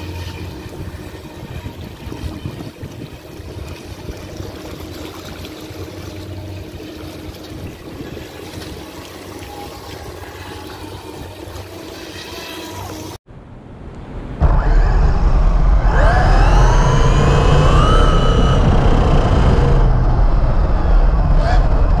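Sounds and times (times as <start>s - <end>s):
model speedboat motor: 0.0s - 13.2s.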